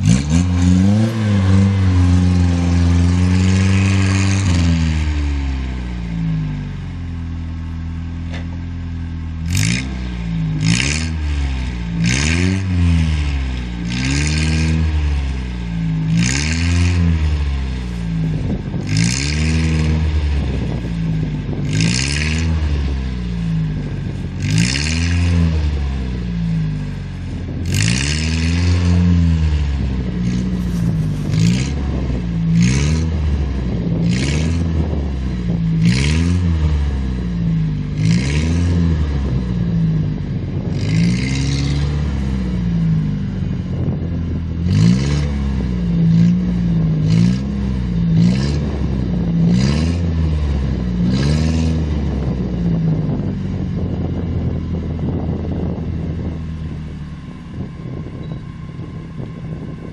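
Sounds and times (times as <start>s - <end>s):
pickup engine revving: 0.0s - 56.5s
wheels spinning in snow: 10.5s - 56.4s.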